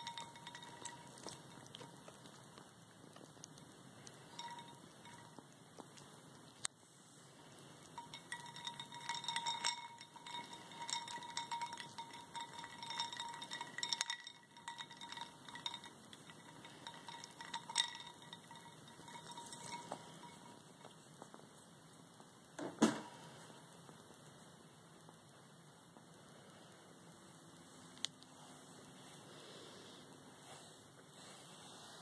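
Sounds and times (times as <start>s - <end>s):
ice cubes clinking in bowl: 0.0s - 2.1s, 4.3s - 5.4s, 8.0s - 20.6s.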